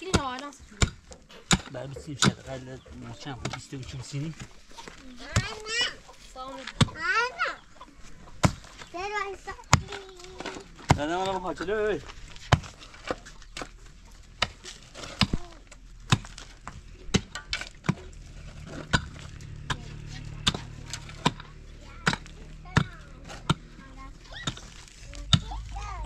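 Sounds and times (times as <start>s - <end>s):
hand tools knocking: 0.1s - 3.8s.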